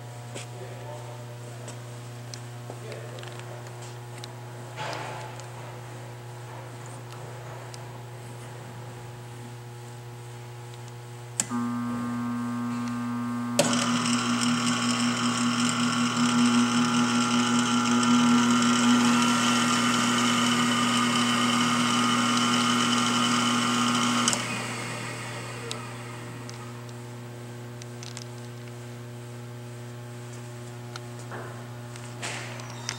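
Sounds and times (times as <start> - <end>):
low hum: 11.4 - 14.0
motor whine: 11.4 - 28.2.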